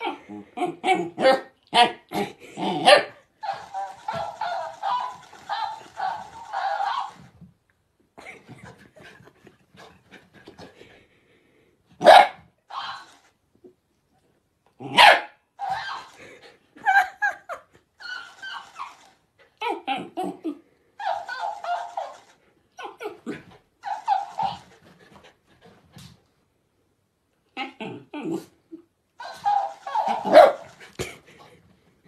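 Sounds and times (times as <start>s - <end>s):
puppy barking and yapping: 2.8s - 7.4s, 12.0s - 13.2s, 14.9s - 16.2s, 18.0s - 20.4s, 21.0s - 24.9s, 29.2s - 30.8s.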